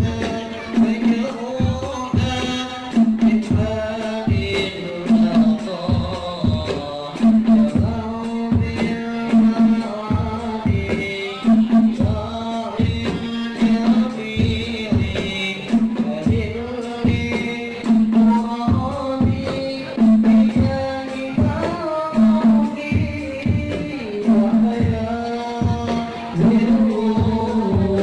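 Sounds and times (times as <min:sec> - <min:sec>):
frame drums beating: 0:00.0 - 0:28.0
voices singing: 0:00.0 - 0:28.0.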